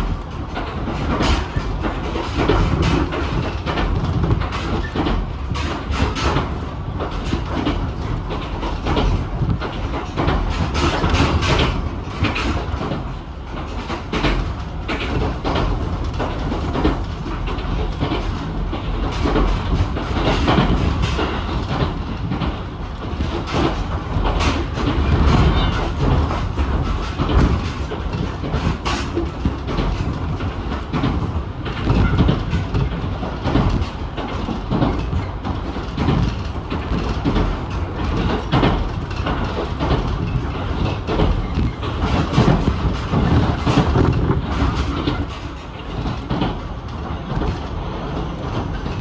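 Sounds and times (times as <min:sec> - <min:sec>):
train rumble inside car: 0:00.0 - 0:49.0
wheels clicking over rails: 0:00.0 - 0:49.0.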